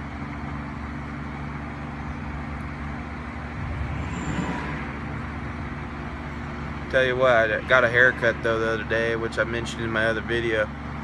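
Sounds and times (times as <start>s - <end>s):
constant hum: 0.0s - 11.0s
road traffic rumble: 0.0s - 11.0s.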